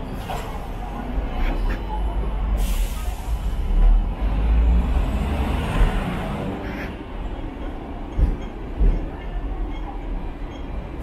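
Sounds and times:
tram rumbling on rails: 0:00.0 - 0:11.0.

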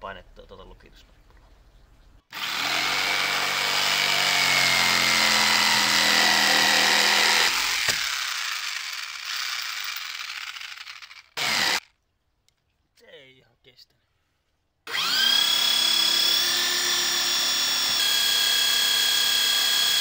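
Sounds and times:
electric drill motor whine: 0:02.4 - 0:11.8, 0:14.9 - 0:20.0.

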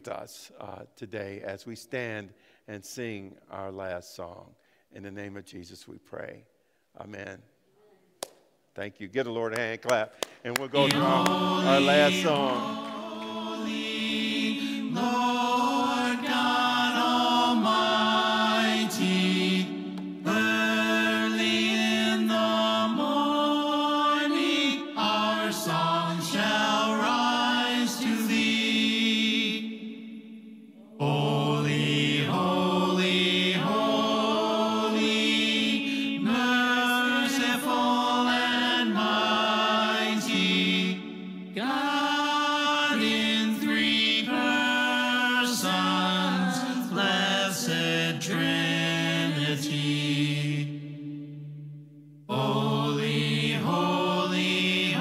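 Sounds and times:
worship song singing: 0:08.2 - 0:55.0.

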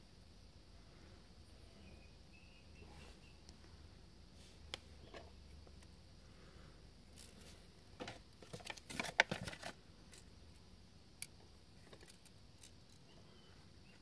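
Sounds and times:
plastic eyeglasses clicking and rattling: 0:08.5 - 0:10.3, 0:11.2 - 0:13.0.

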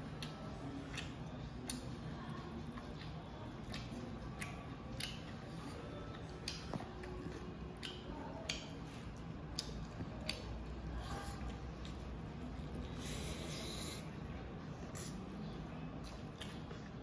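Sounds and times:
wet mouth clicks and smacks: 0:00.2 - 0:01.9, 0:03.0 - 0:05.4, 0:07.8 - 0:08.8, 0:09.5 - 0:10.5, 0:16.0 - 0:16.9.

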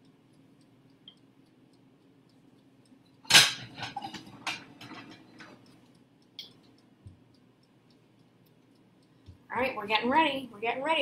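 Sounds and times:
dial timer ticking: 0:00.0 - 0:03.2, 0:05.1 - 0:10.4
kitchenware clattering: 0:03.3 - 0:05.6.

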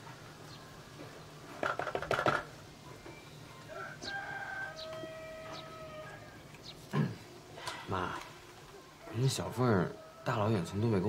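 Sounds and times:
chickens clucking: 0:00.8 - 0:11.0
rooster crowing: 0:03.7 - 0:06.5, 0:08.8 - 0:10.8.

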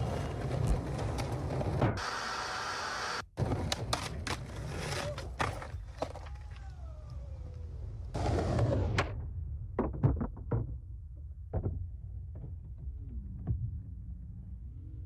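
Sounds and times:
skateboard wheels rolling: 0:00.0 - 0:09.2.

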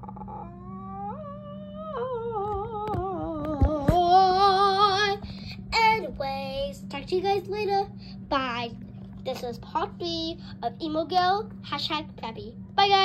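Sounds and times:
child humming: 0:00.0 - 0:05.4.

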